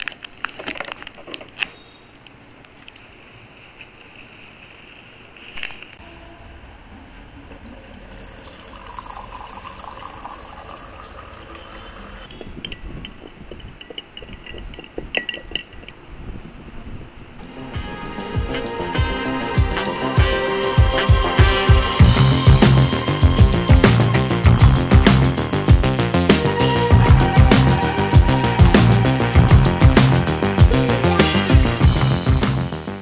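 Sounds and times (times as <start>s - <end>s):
water pouring into a glass: 7.5s - 12.3s.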